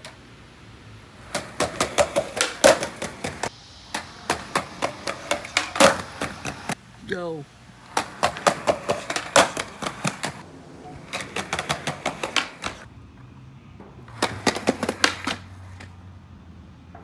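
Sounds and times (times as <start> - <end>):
skateboard clattering on concrete: 1.2 - 6.8, 7.9 - 12.9, 14.1 - 15.9.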